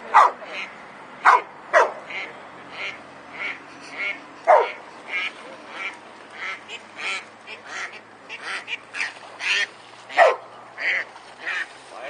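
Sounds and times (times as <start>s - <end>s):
duck quacking: 1.8s - 11.7s.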